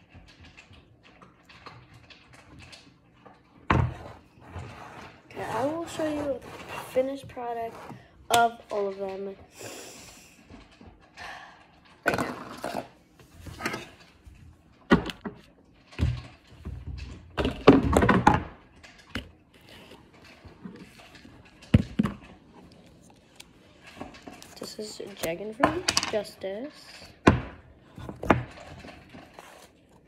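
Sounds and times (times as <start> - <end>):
plastic tubs thunking on a table: 16.0 - 18.6, 27.2 - 28.6.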